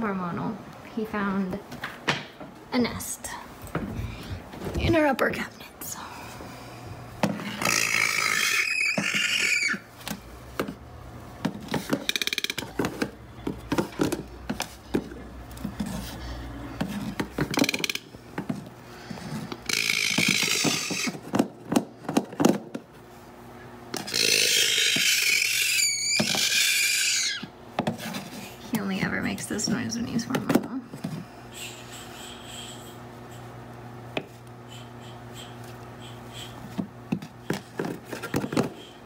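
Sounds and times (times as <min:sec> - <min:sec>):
toucan raspy hissing: 0:31.5 - 0:33.5, 0:34.6 - 0:36.6.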